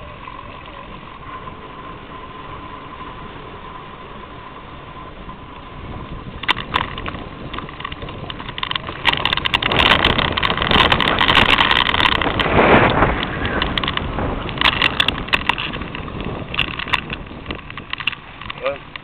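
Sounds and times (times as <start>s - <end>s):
bicycle rattling and clicking: 0.0s - 19.0s
bicycle tyres on tarmac: 0.0s - 19.0s.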